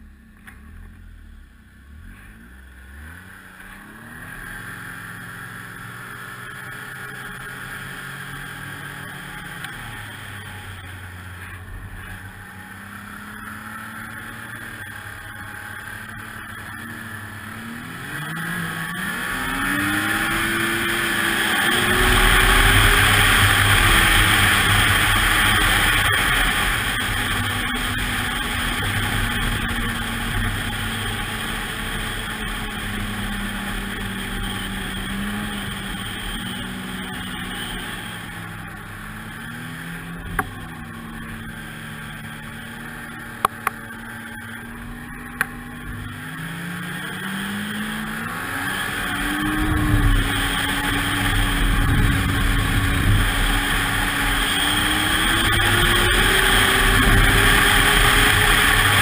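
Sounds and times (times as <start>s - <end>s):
snowmobile engine running: 0.0s - 59.0s.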